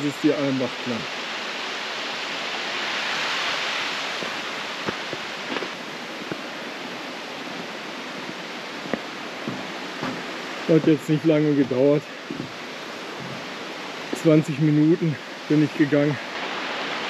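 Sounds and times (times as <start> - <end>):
stream rushing: 0.0 - 17.0
light knocks: 8.9 - 10.3.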